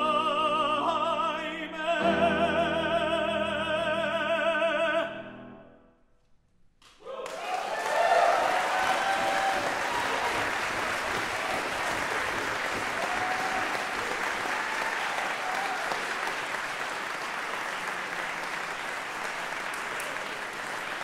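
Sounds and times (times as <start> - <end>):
audience applauding: 7.0 - 21.0.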